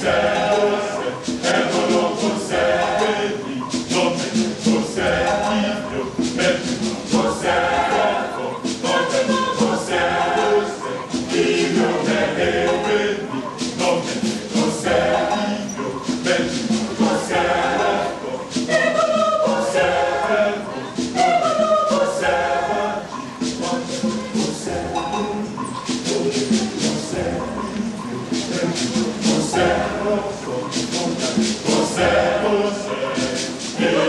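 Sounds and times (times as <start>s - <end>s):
choir singing in harmony: 0.0s - 34.0s
sharp percussive strikes: 0.0s - 34.0s.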